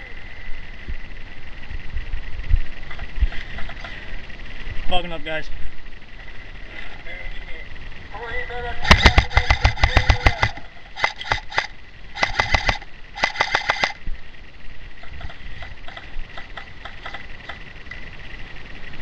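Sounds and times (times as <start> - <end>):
airsoft gun full-auto bursts: 8.8 - 14.0.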